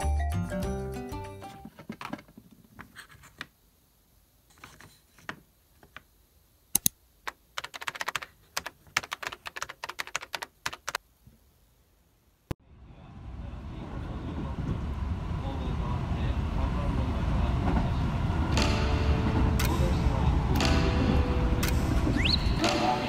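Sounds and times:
wooden blocks clicking and knocking: 6.8 - 11.0.

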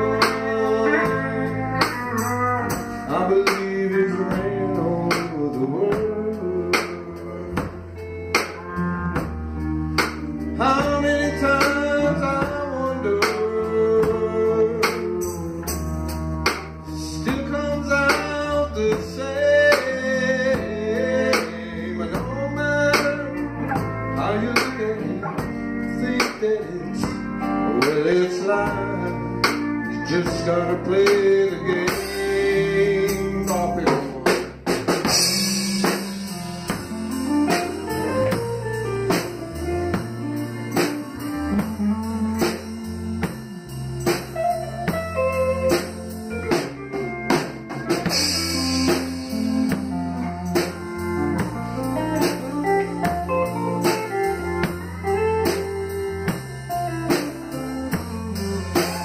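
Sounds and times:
man singing: 0.0 - 8.0, 10.4 - 15.5, 16.8 - 38.4
live band playing blues ballad: 0.0 - 59.0.

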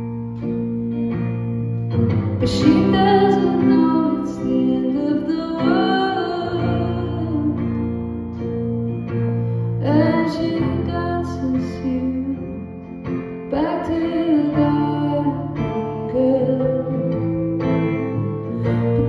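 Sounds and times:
electric bass: 0.0 - 19.0
guitar: 0.0 - 19.0
woman singing: 2.4 - 8.3, 9.8 - 19.0.

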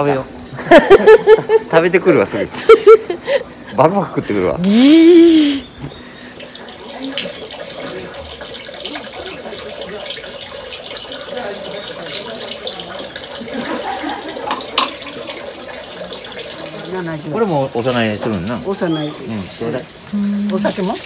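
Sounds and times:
water pouring into stone basin: 6.0 - 21.0.

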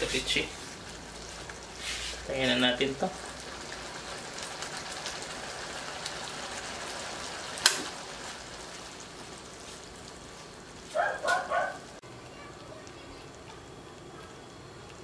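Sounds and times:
sauce sizzling in a wok: 0.0 - 11.0.

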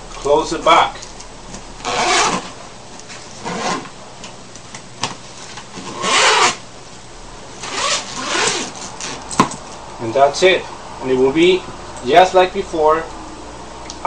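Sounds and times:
zipper rasping: 1.8 - 2.6, 3.4 - 3.9, 5.8 - 6.6, 7.6 - 9.2.

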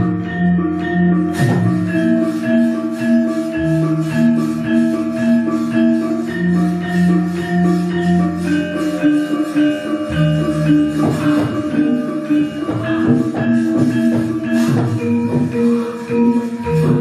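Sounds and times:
gamelan orchestra playing: 0.0 - 17.0.

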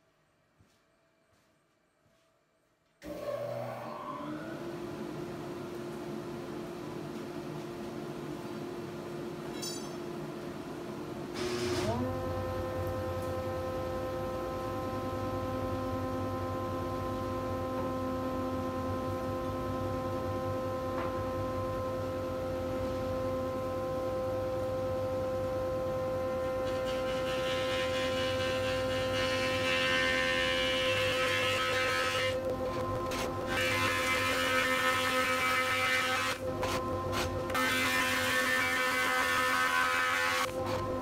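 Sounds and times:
planer cutting wood: 11.4 - 18.8, 26.4 - 41.0.

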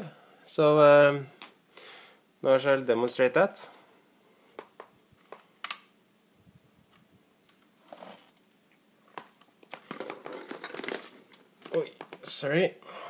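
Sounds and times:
plastic rattling: 9.1 - 12.2.

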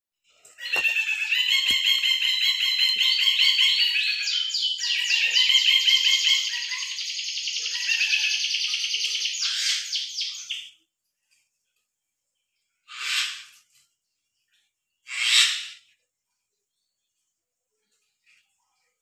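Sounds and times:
songbird singing: 0.6 - 10.8.

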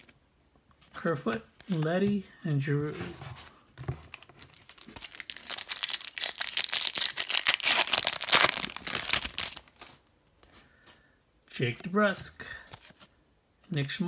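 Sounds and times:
foil wrapper tearing and crinkling: 4.4 - 10.0.

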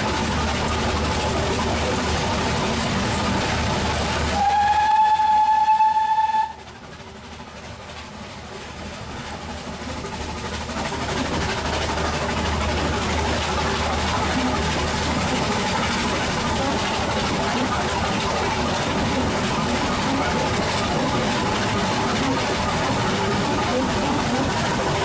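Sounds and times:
train running noise: 0.0 - 25.0
steam locomotive whistle: 4.2 - 6.6.

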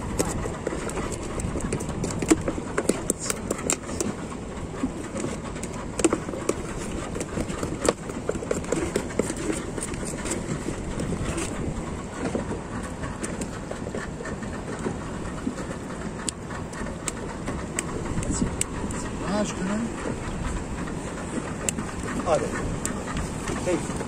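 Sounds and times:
low background rumble: 0.0 - 24.0
knife scraping shell: 4.9 - 11.6.

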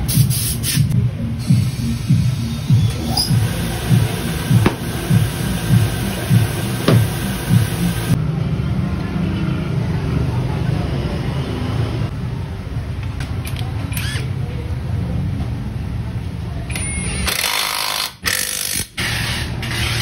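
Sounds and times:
music with steady beat: 0.1 - 8.2.

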